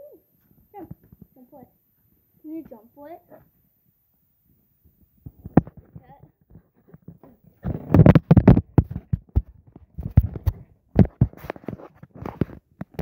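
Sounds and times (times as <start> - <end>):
phone handling knocks and rustling: 5.2 - 13.0.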